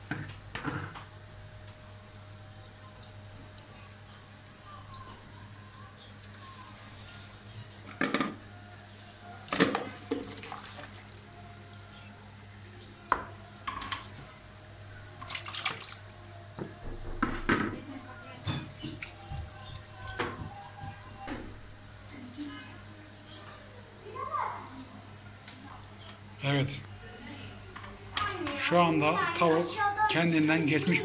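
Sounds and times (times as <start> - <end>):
liquid splashing into sink: 9.5 - 11.2, 15.1 - 17.6, 18.8 - 21.8
dishes clinking: 18.4 - 21.5.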